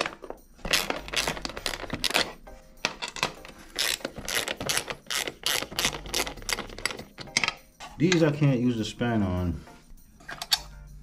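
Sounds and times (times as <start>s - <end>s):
spanner clicking on nuts: 0.7s - 8.2s.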